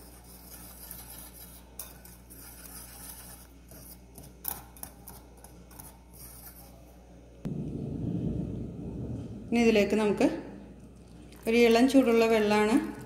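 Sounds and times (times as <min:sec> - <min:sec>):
whisk stirring flour in bowl: 0:00.0 - 0:06.9.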